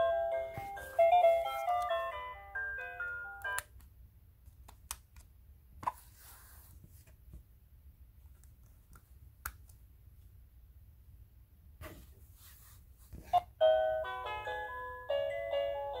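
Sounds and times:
music box tinkling melody: 0:00.0 - 0:03.6, 0:13.6 - 0:16.0.

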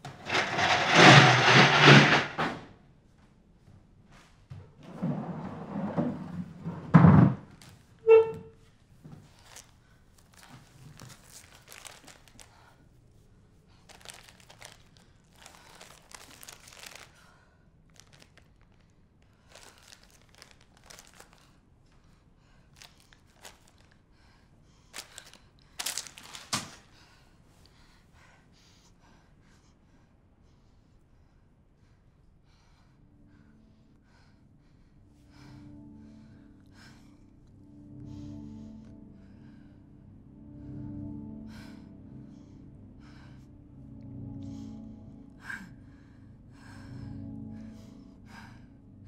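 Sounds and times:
short squeak: 0:08.0 - 0:08.6
rustling: 0:09.2 - 0:13.2, 0:13.8 - 0:17.1, 0:24.9 - 0:26.9
paper tissue crinkling: 0:09.3 - 0:12.8, 0:13.7 - 0:21.6, 0:22.8 - 0:24.0, 0:24.9 - 0:26.8.

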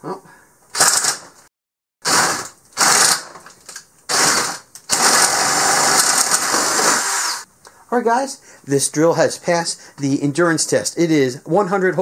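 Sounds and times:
power drill boring wood: 0:02.1 - 0:03.3, 0:04.1 - 0:07.5.

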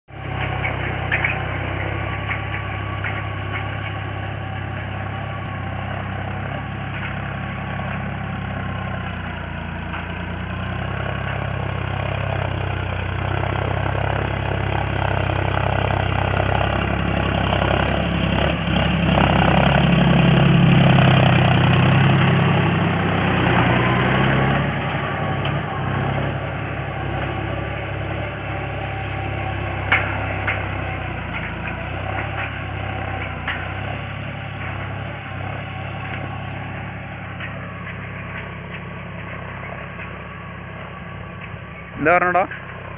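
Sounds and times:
tractor diesel engine running: 0:00.0 - 0:42.9.

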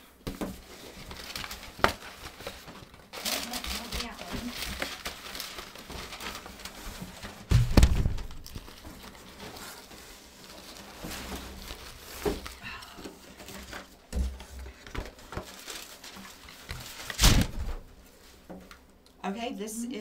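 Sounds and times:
packaging rustling: 0:00.3 - 0:18.8
heavy thump: 0:07.5 - 0:08.4.

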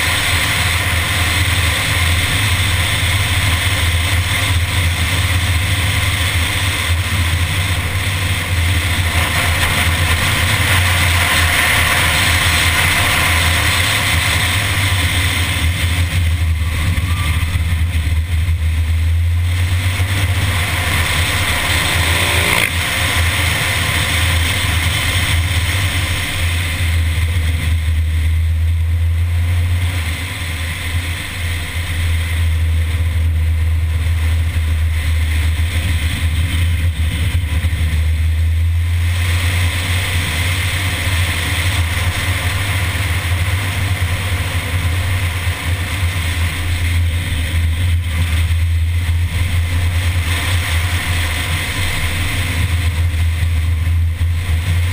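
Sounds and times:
car engine running under load: 0:00.0 - 0:54.9
heavy wind rush: 0:00.0 - 0:54.9.

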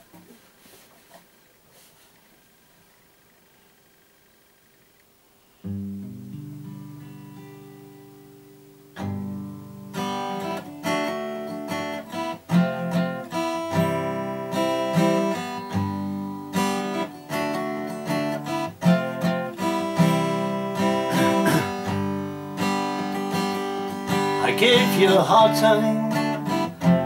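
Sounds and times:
acoustic guitar strumming: 0:05.6 - 0:27.0.

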